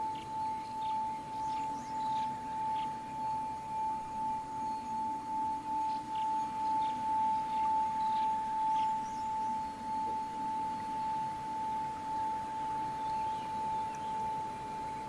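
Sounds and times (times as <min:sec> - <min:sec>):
singing bowl ringing tone: 0:00.0 - 0:15.0.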